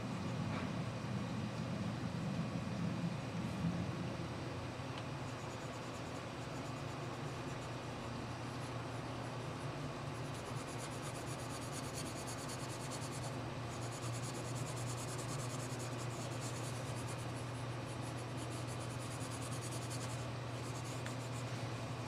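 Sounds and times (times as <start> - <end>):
steady low hum: 0.0 - 22.0
charcoal scratching on paper: 5.2 - 21.5.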